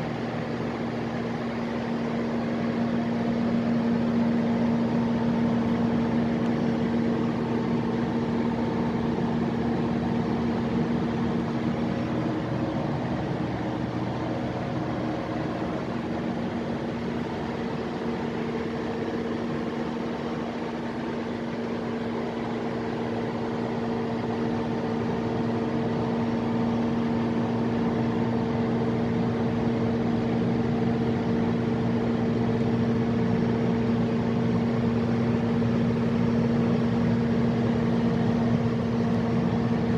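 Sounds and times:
diesel generator engine humming: 0.0 - 39.9.

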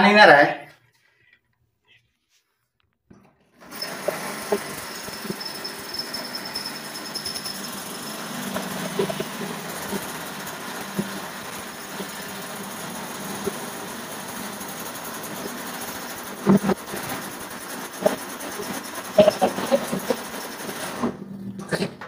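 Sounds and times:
power drill cutting metal: 3.6 - 21.1.

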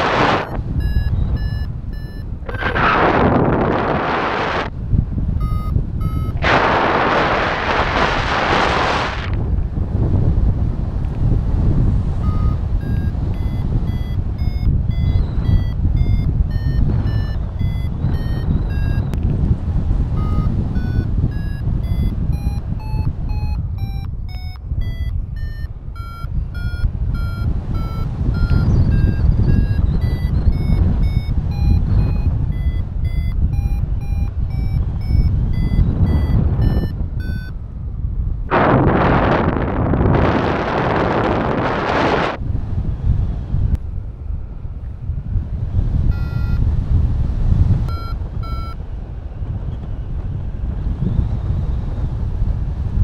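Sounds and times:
variometer beeping: 0.0 - 3.8, 5.2 - 6.5, 12.1 - 37.7, 46.0 - 46.8, 47.7 - 48.9
wind noise on microphone: 0.0 - 53.0.

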